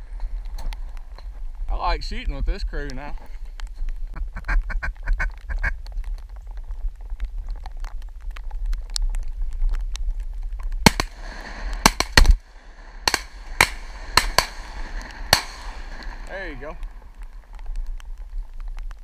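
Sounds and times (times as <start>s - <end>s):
rain ticking on microphone: 0.0s - 19.0s
shotgun blasts: 10.8s - 16.8s.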